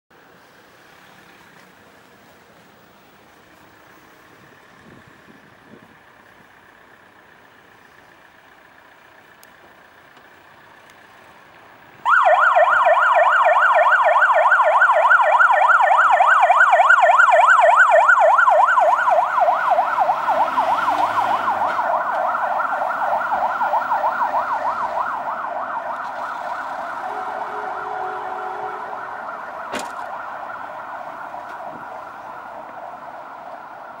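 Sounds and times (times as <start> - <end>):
fire truck siren warbling: 12.0 - 34.0.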